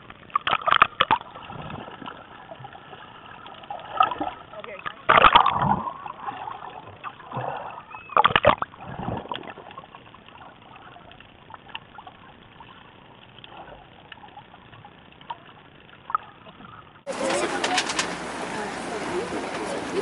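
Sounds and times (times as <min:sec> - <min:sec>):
underwater splashing and bubbling: 0:00.0 - 0:17.3
faint ticks: 0:08.1 - 0:17.0.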